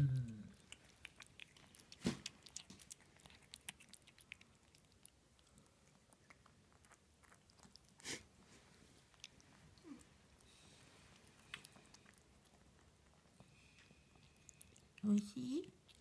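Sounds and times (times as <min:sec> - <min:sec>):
kitten lapping and chewing: 0:00.0 - 0:16.0.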